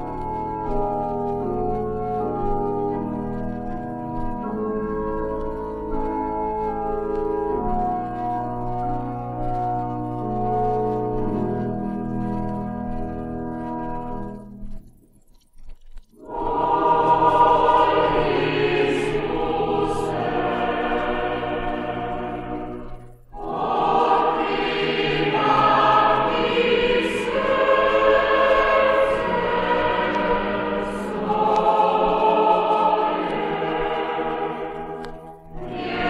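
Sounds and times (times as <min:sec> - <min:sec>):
choir singing sacred song: 0:16.2 - 0:36.0.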